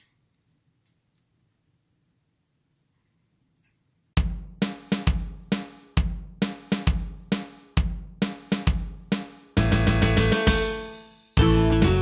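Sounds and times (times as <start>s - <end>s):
background music with drum beat: 4.2s - 12.0s.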